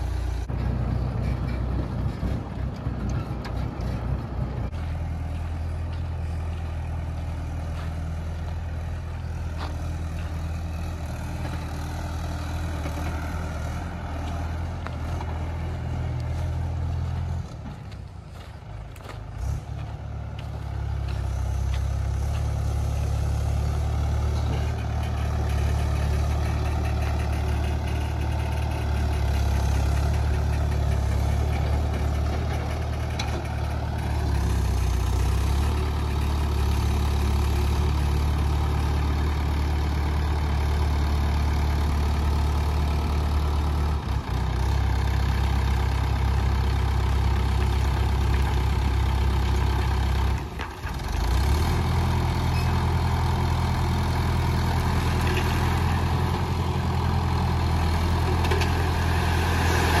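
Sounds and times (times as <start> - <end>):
tractor diesel engine running: 0.0 - 60.0
soil sliding off trailer: 58.1 - 60.0.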